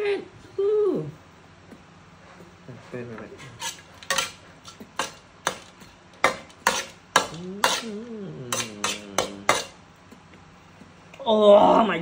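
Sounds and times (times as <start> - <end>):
metal utensil clanking on wok: 3.6 - 7.9
person humming: 7.3 - 9.5.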